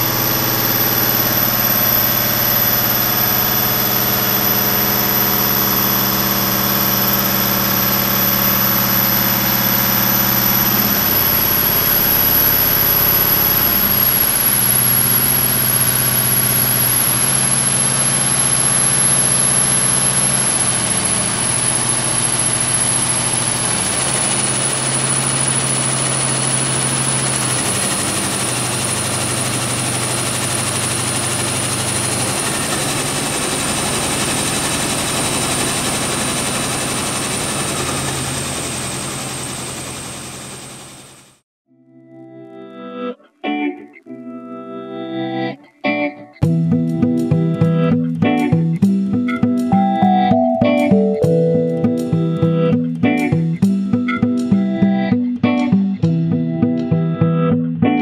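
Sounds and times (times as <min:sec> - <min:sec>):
thin high whine: 0:00.0 - 0:40.8
diesel engine running: 0:00.0 - 0:41.4.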